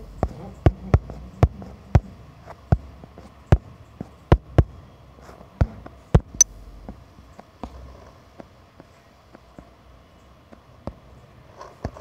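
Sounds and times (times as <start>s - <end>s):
faint low hum: 0.0s - 8.2s.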